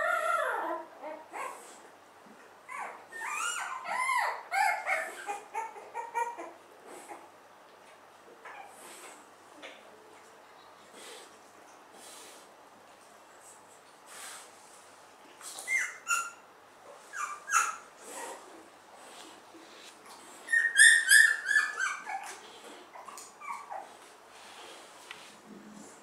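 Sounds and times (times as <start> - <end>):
puppies squealing and whimpering: 0.0 - 1.6, 2.7 - 7.3, 15.6 - 16.4, 17.1 - 18.4, 20.4 - 24.0.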